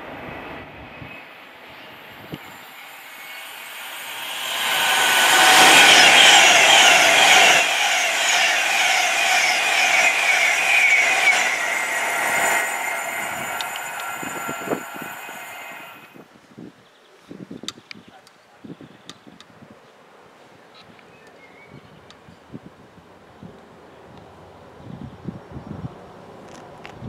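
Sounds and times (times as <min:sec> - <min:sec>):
train passing at speed: 0:00.0 - 0:16.2.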